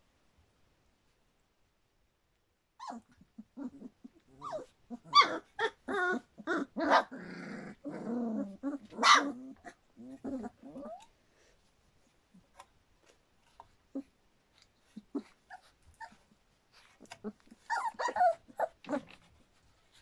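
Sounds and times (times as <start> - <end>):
puppies whining and yipping: 2.8 - 7.1, 14.8 - 19.3
puppy growling: 2.8 - 11.1, 14.8 - 19.3.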